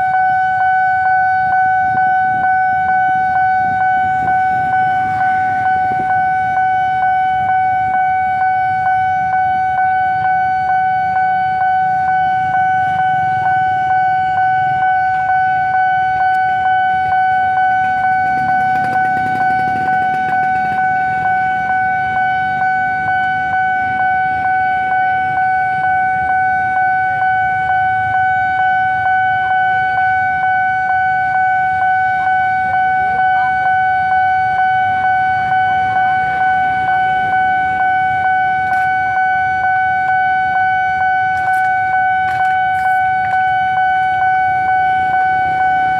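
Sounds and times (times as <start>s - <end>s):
level-crossing warning bell: 0.0s - 45.9s
motorcycle engines idling: 1.4s - 9.6s, 12.0s - 25.9s, 29.9s - 44.2s.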